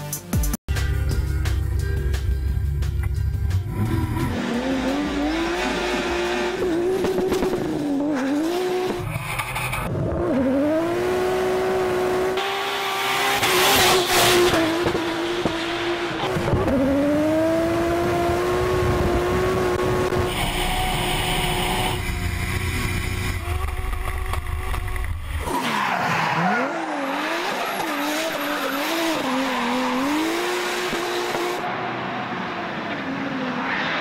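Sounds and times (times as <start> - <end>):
car engine at high revs: 3.6 - 34.0
tire squeal: 20.2 - 30.7.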